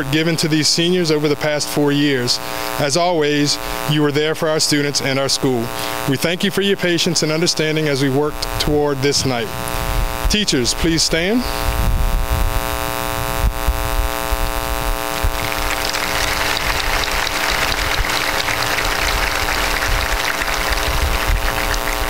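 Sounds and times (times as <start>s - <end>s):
steady electrical hum: 0.0s - 22.0s
crowd applauding: 15.1s - 22.0s.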